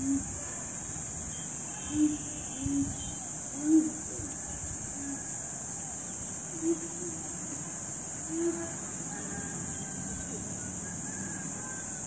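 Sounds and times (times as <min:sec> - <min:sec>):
high-pitched insect drone: 0:00.0 - 0:12.0
low hooting bird calls: 0:01.4 - 0:05.4.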